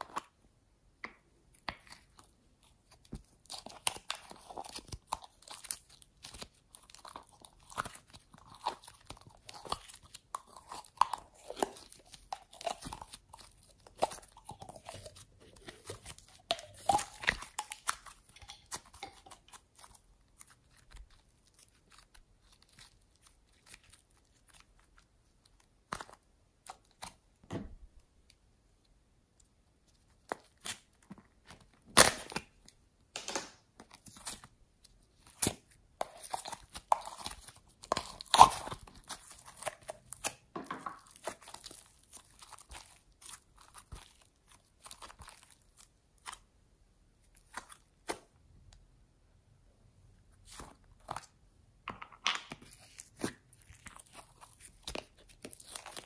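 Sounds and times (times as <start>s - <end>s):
sticky crackles of squeezed slime: 1.6s - 27.2s, 33.8s - 46.5s, 52.5s - 56.0s.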